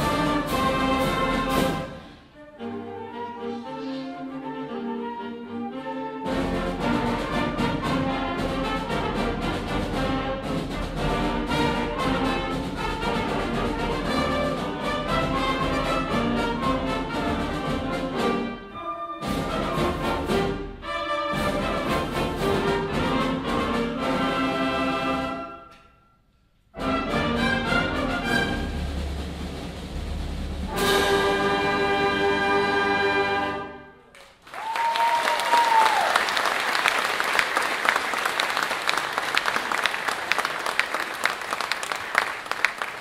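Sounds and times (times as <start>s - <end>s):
concert band playing a march: 0.0s - 25.9s, 26.7s - 34.1s
audience applauding: 34.1s - 43.0s.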